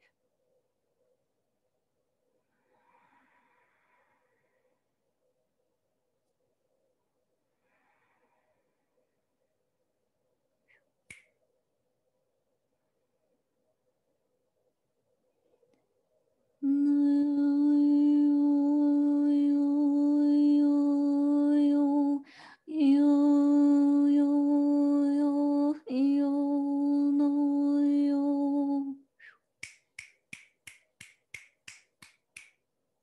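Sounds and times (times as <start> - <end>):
woman breathing: 2.4 - 5.0, 7.4 - 9.3, 22.2 - 22.7.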